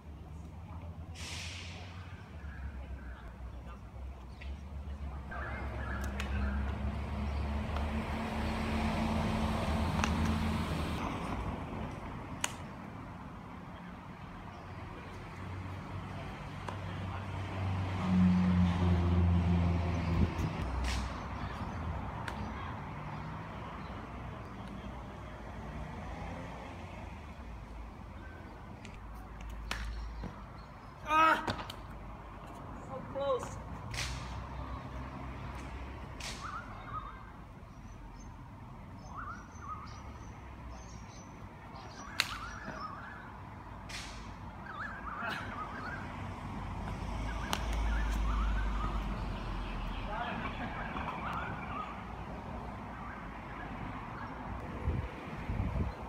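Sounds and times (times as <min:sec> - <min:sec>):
car passing: 0:05.2 - 0:12.4, 0:14.8 - 0:28.4, 0:43.9 - 0:56.0
person yelling: 0:31.0 - 0:31.5.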